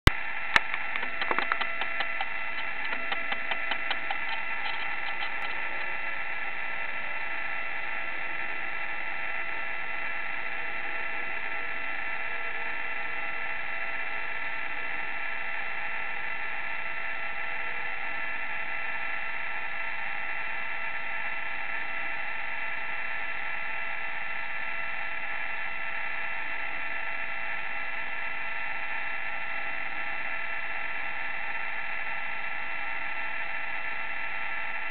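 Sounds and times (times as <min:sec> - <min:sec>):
steady electrical whine: 0:00.1 - 0:34.9
rapid even ticks: 0:00.5 - 0:05.9.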